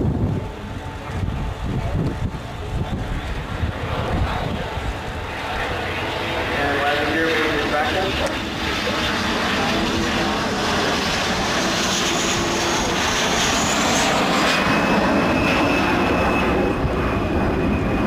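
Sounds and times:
high jet whine: 0.0 - 18.0
jet engines roaring: 0.0 - 18.0.

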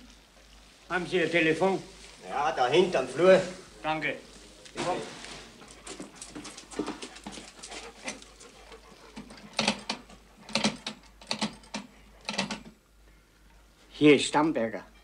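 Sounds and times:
rotary telephone dial clicks: 9.5 - 12.7.

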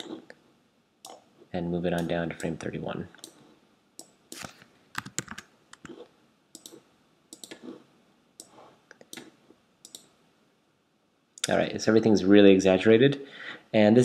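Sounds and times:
mouse and keyboard clicks: 4.0 - 7.8, 8.4 - 10.1.

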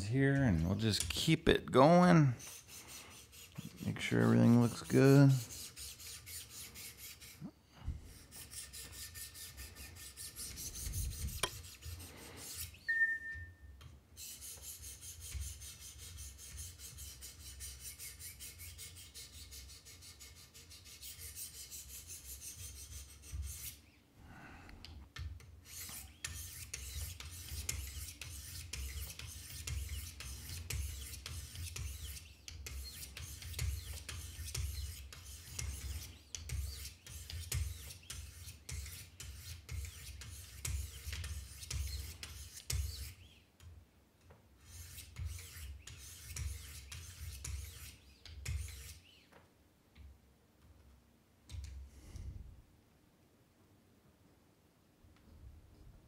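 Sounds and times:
sharpening stones rasping on blade: 25.6 - 43.2, 44.6 - 49.0.

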